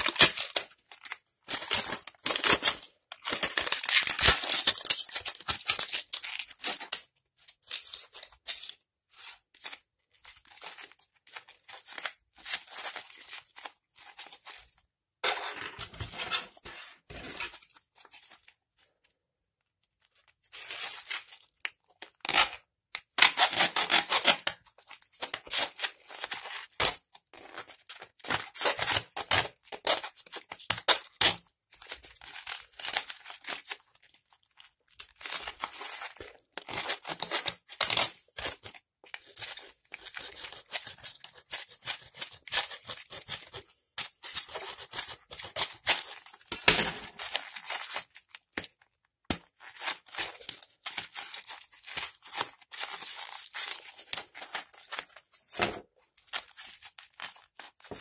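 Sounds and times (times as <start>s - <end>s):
foil and plastic crinkling: 0.0s - 7.0s, 49.4s - 58.0s.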